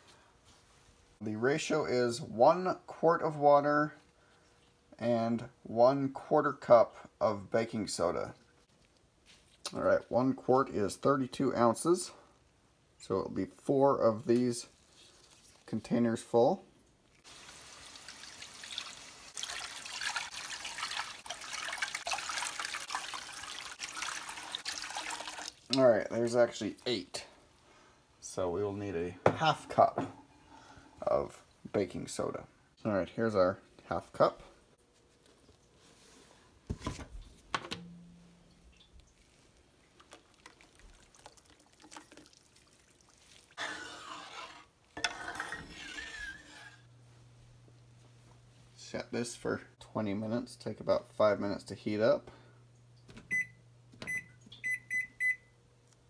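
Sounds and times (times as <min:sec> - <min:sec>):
water pouring into a pan: 0:17.2 - 0:25.8, 0:38.7 - 0:44.2.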